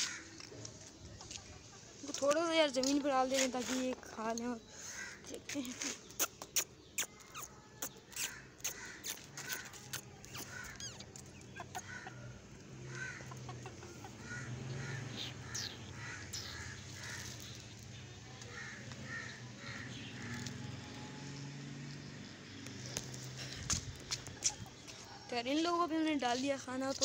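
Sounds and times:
chickens clucking: 0:00.0 - 0:04.5, 0:05.4 - 0:19.4, 0:22.8 - 0:25.2.

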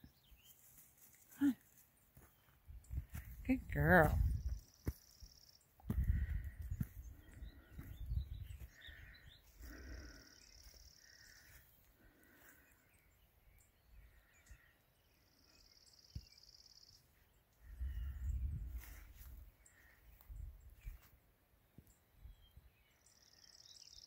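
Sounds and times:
faint chirps: 0:06.8 - 0:19.0.

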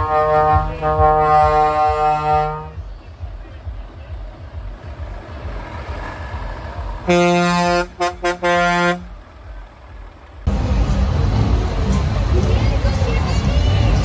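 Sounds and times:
truck air horn blasts: 0:00.0 - 0:02.8, 0:07.0 - 0:09.2
low rumble: 0:00.0 - 0:08.3.

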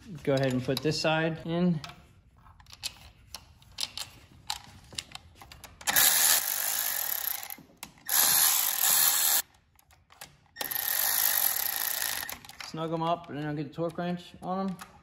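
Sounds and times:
cordless electric ratchet running: 0:05.9 - 0:09.4, 0:10.6 - 0:12.4.

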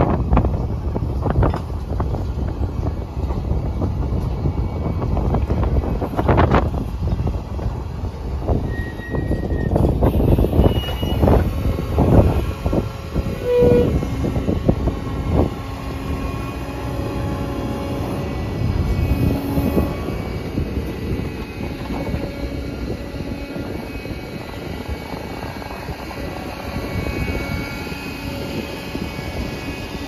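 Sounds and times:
short horn toot: 0:08.7 - 0:11.4, 0:13.4 - 0:14.0.

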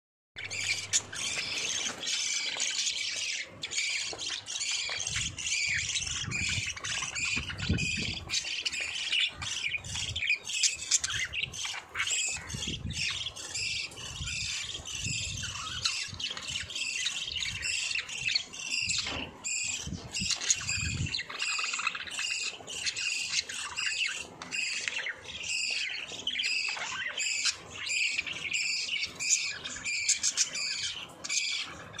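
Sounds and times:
budgerigars chirping: 0:00.4 - 0:32.0.

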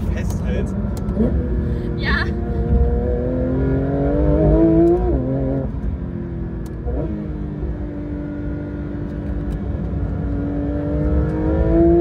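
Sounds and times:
car engine accelerating from inside: 0:00.2 - 0:12.0.

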